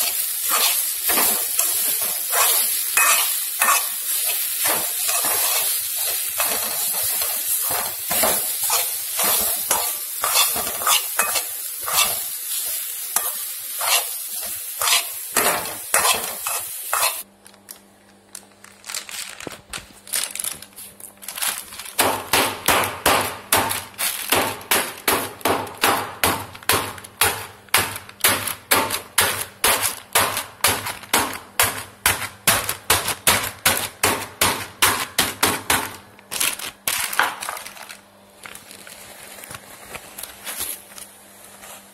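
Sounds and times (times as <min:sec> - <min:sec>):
spatula scraping a pan: 0:00.0 - 0:17.2
coconut sizzling in a pan: 0:00.0 - 0:17.3
knocks crushing in plastic: 0:17.4 - 0:41.1.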